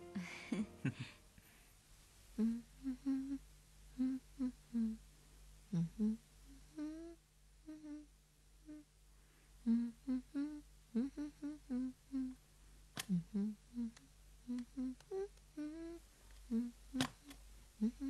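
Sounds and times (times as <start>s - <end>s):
woman humming: 0.0s - 1.1s, 2.4s - 5.0s, 5.7s - 8.9s, 9.6s - 12.4s, 13.0s - 18.0s.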